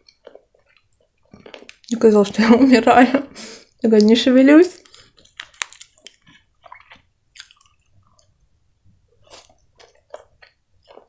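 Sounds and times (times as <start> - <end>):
wet chewing and lip smacks: 4.8 - 8.3, 9.3 - 11.0.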